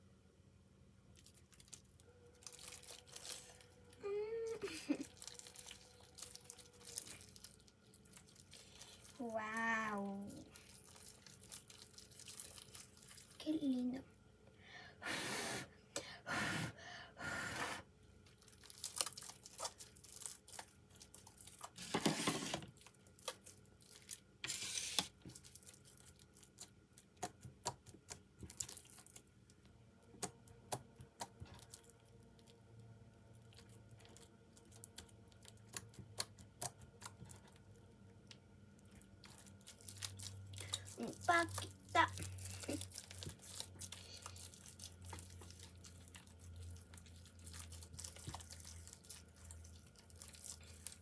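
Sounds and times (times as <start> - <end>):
slime crackling and popping: 1.1 - 4.0, 4.6 - 13.5, 18.2 - 21.9, 22.7 - 51.0
slime squishing and tearing: 1.2 - 13.4, 18.3 - 21.9, 38.8 - 51.0.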